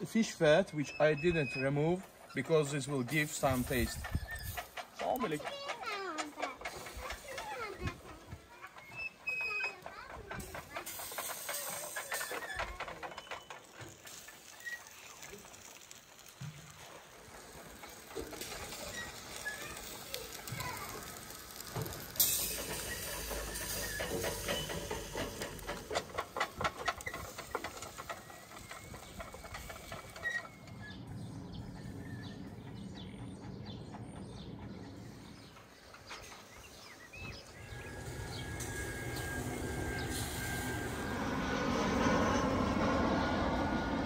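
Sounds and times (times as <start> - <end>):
fish sizzling over charcoal: 10.8 - 29.1
low rumble: 37.5 - 44.0.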